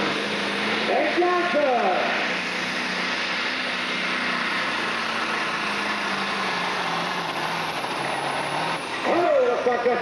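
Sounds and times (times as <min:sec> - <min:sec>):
diesel tractor engine under load: 0:00.0 - 0:10.0.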